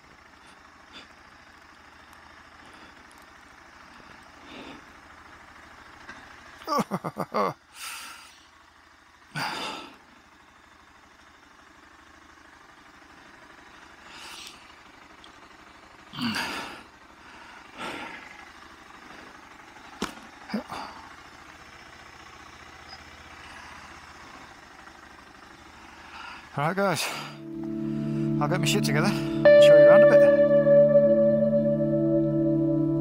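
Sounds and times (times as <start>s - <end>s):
breathy sighs and grunts: 16.2s - 16.9s, 20.5s - 21.2s.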